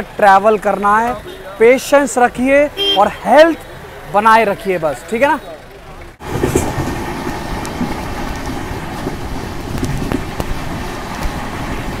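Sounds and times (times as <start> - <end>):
wheels clicking on rails: 5.2 - 12.0
train rumbling on track: 6.0 - 12.0.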